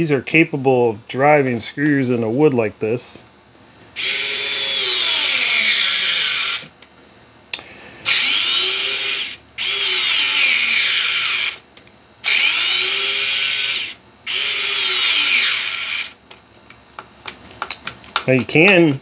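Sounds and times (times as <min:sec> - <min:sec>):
cordless screwdriver motor whine: 0:04.0 - 0:06.7, 0:08.1 - 0:11.6, 0:12.2 - 0:16.2.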